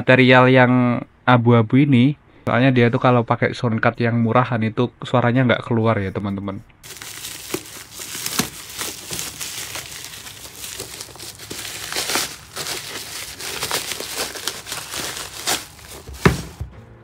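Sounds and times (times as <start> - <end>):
plastic wrap crinkling and crackling: 6.8 - 16.6.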